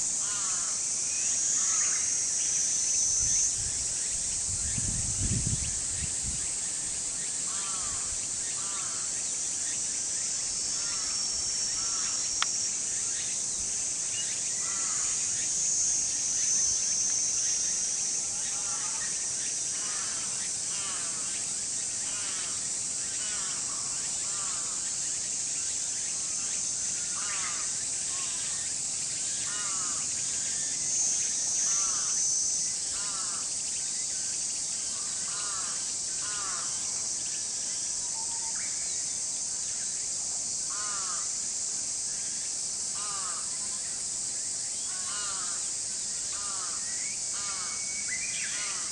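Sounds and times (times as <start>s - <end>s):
high insect drone: 0.0s - 48.9s.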